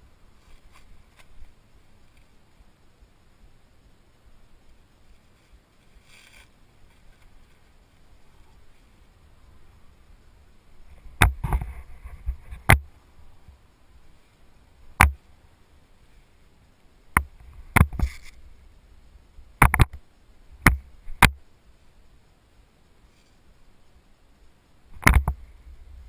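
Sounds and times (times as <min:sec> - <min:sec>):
sharp knocks and clicks: 0:15.0 - 0:15.2, 0:17.2 - 0:18.2, 0:19.6 - 0:20.0, 0:20.6 - 0:21.4, 0:25.0 - 0:25.4.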